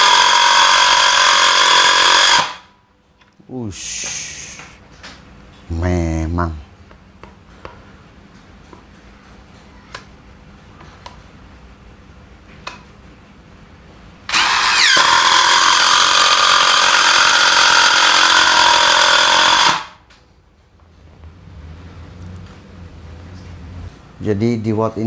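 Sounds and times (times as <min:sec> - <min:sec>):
impact driver driving screw: 0:00.0 - 0:02.6, 0:14.3 - 0:19.9.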